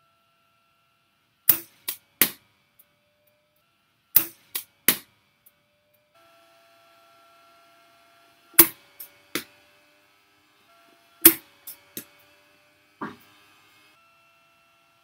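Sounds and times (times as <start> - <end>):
cricket bat hitting ball: 1.5 - 2.4, 4.2 - 5.1, 8.6 - 8.8, 11.2 - 12.2, 13.0 - 13.2.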